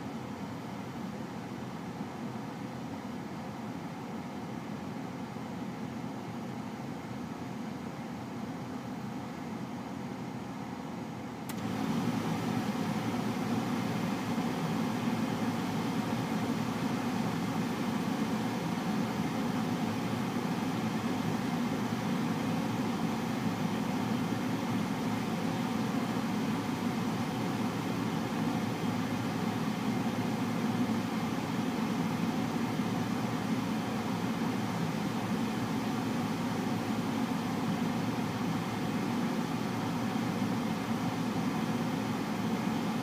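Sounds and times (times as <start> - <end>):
car air blower running: 11.5 - 43.0.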